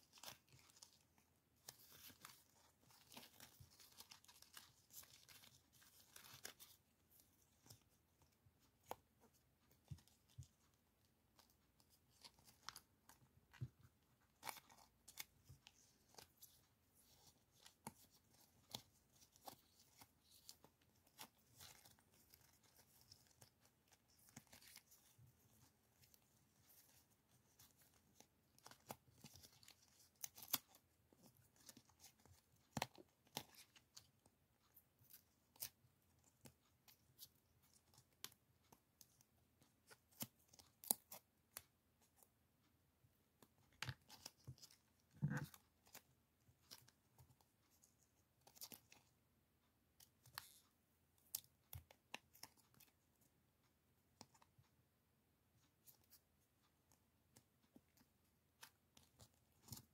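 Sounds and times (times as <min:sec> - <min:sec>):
paper rustle: 0:00.0 - 0:10.5, 0:11.4 - 0:34.1
paper stickers crackling and tearing: 0:01.6 - 0:06.8.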